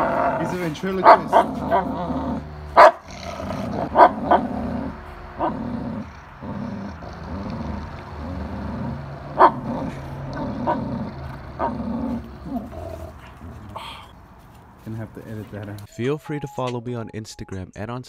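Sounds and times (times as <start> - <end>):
dog barking: 0.0 - 6.4, 9.3 - 14.0
dogs growling: 0.0 - 14.4.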